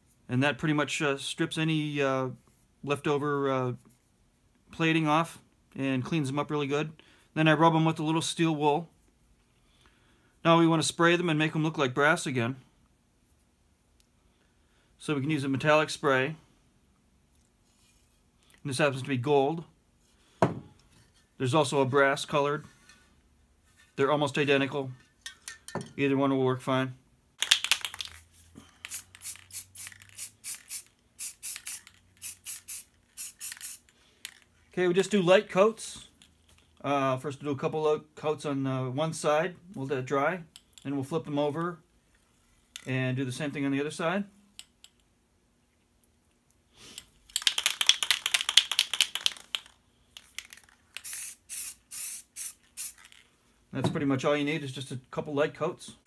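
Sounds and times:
spray can hissing: 28.8 - 33.9, 50.4 - 53.1.

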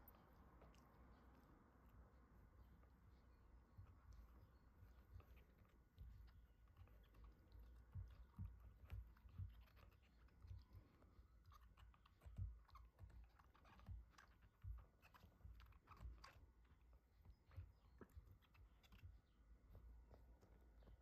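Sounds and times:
dog gnawing a chew toy: 5.2 - 16.6.

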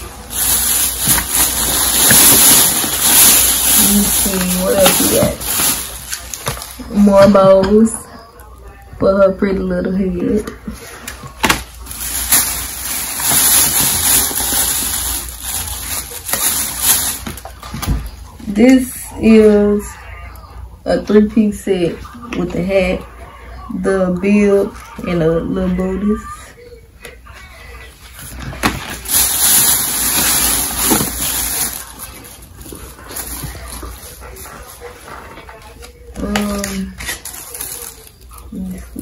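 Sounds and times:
plastic packaging crinkling: 0.0 - 7.4, 10.8 - 18.2, 28.0 - 39.0
plastic bags rustling: 0.0 - 8.0, 10.3 - 18.3, 27.8 - 39.0.

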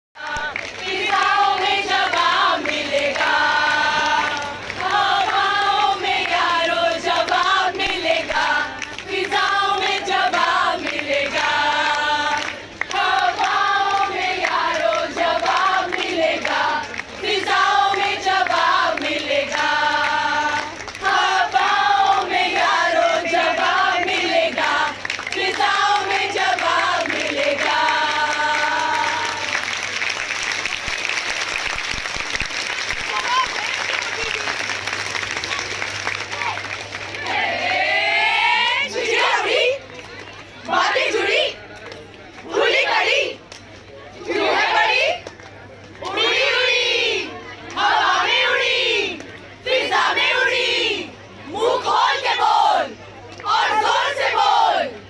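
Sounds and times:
women singing in unison: 0.2 - 29.7, 37.2 - 39.8, 46.0 - 54.9.

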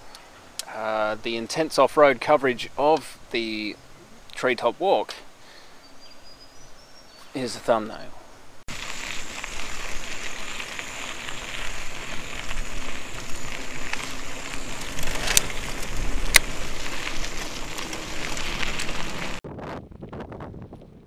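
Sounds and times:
bike tyres crunching on gravel: 8.7 - 19.4.

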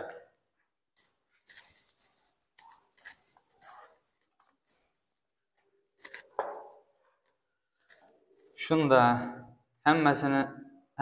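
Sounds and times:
marker scratching on whiteboard: 0.9 - 8.6.

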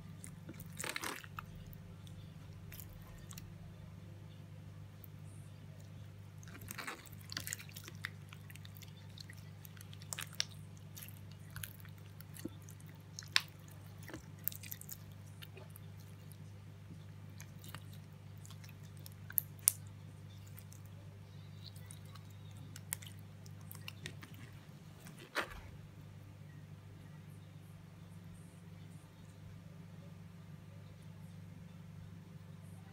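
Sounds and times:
slime squelching and popping: 0.2 - 3.4, 6.4 - 16.4, 17.4 - 20.9.

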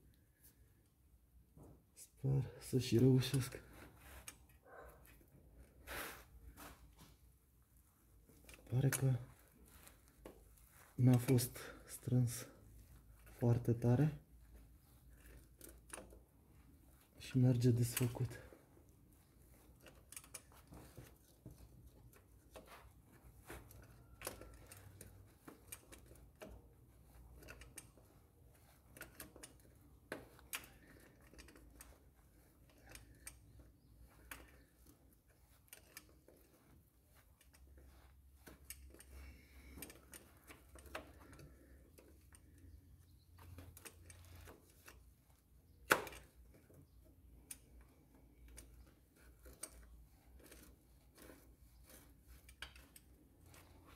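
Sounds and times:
wrench clicking on metal: 19.5 - 21.2, 23.4 - 33.5, 47.4 - 53.9.

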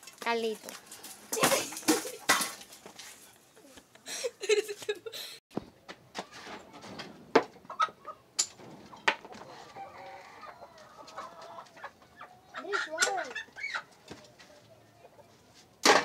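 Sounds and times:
chickens clucking: 6.6 - 15.8
rooster crowing: 9.5 - 11.4.

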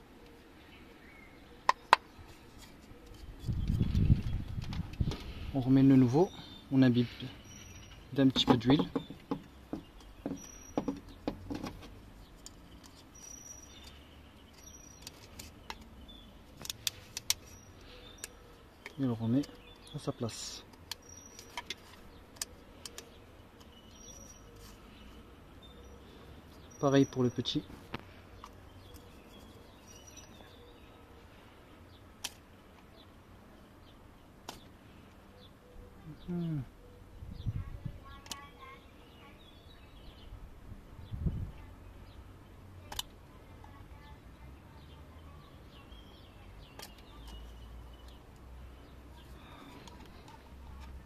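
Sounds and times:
bird chirps: 6.0 - 11.3, 12.2 - 32.1
rubber seal handling clicks: 16.6 - 17.5, 20.7 - 24.0.

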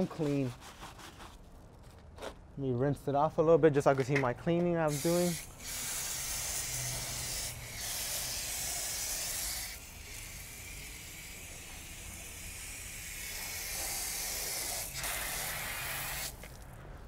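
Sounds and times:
hose water spray hissing: 4.9 - 16.6.

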